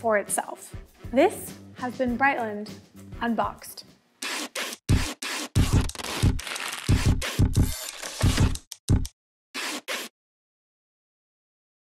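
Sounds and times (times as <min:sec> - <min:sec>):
marker scratching on cardboard: 0:04.2 - 0:06.0, 0:09.6 - 0:10.1.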